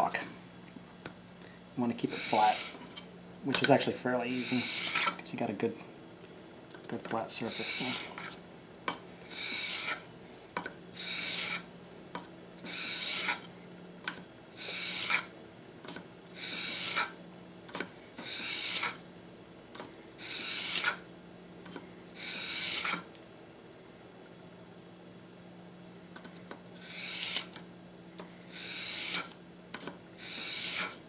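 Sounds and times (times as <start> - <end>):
blade scraping on sandpaper: 2.1 - 3.0, 4.3 - 5.2, 7.4 - 8.4, 9.3 - 10.1, 11.0 - 11.7, 12.6 - 13.5, 14.6 - 15.3, 16.4 - 17.2, 18.2 - 19.0, 20.2 - 21.0, 22.2 - 23.1, 26.8 - 27.6, 28.5 - 29.4, 30.2 - 31.0.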